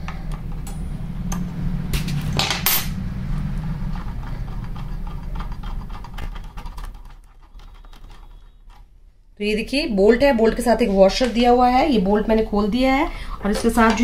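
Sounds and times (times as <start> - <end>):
low hum: 0.0 - 8.8.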